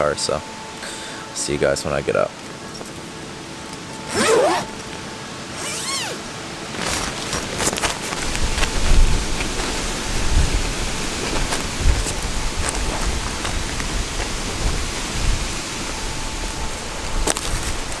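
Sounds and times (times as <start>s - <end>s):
wind buffeting microphone: 7.4s - 18.0s.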